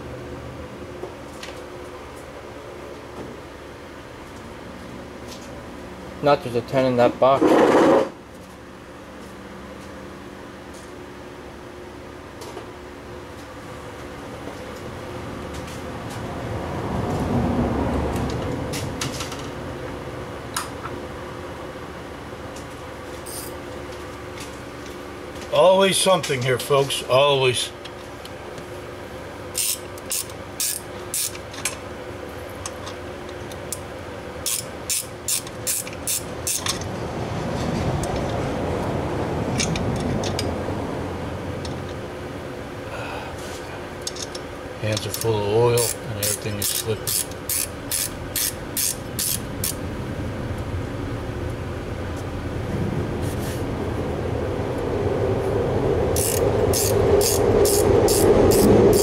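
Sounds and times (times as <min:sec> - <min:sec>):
steady low hum: 0:00.0 - 0:59.0
steady low rumble: 0:36.2 - 0:59.0
socket ratchet clicking: 0:45.8 - 0:49.8, 0:56.2 - 0:59.0.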